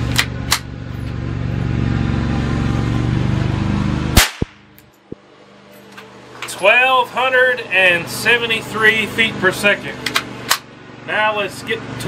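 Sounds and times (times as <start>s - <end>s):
steady low hum: 0.0s - 12.0s
rifle gunshot: 4.2s - 4.8s.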